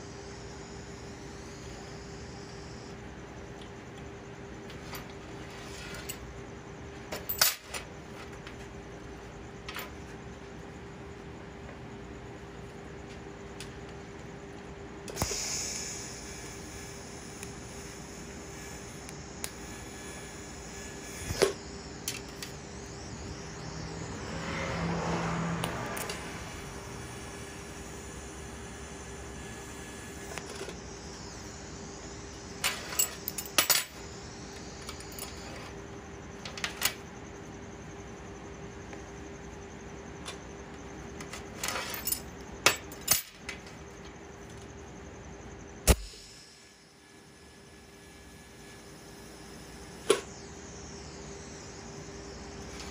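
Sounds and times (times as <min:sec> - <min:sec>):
electrical hum: 0:00.0 - 0:52.9
gas hiss: 0:15.1 - 0:17.6
metal pieces clinking on steel table: 0:32.6 - 0:33.9, 0:41.6 - 0:43.5
sharp metallic click: 0:45.8 - 0:46.3.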